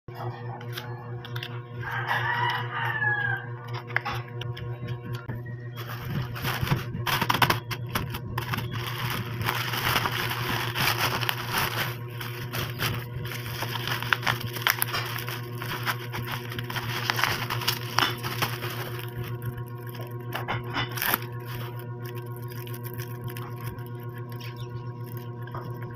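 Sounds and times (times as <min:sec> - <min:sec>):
plastic bag crinkling: 0:05.8 - 0:25.9.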